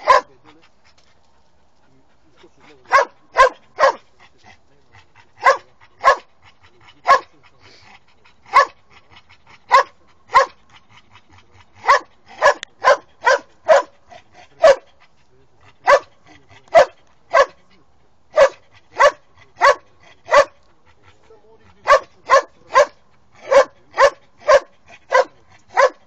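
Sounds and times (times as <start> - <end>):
dog barking: 0.0 - 0.4, 2.8 - 4.1, 5.4 - 6.3, 7.0 - 7.4, 8.5 - 8.8, 9.7 - 10.6, 11.8 - 14.0, 14.6 - 14.9, 15.8 - 17.6, 18.3 - 20.6, 21.8 - 26.0.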